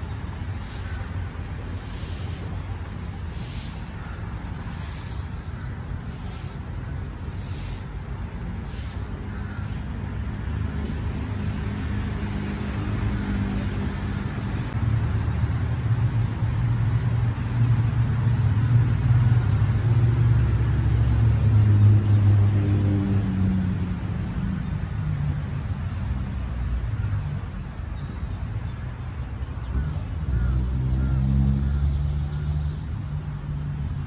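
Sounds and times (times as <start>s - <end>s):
vehicle engine running: 0.6s - 24.5s.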